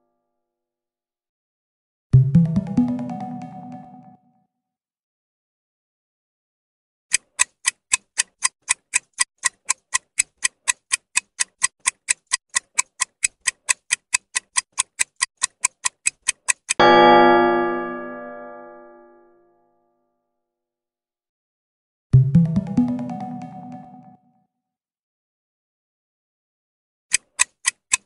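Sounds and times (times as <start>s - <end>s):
fast clock ticking: 7.1s - 16.8s, 27.1s - 28.0s
ringing chime: 16.8s - 19.2s.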